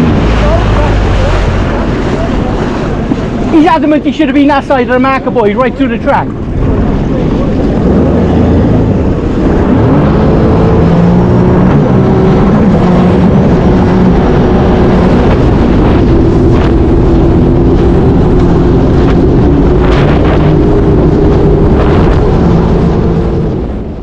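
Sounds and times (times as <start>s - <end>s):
jet ski engine running: 0.0s - 24.0s.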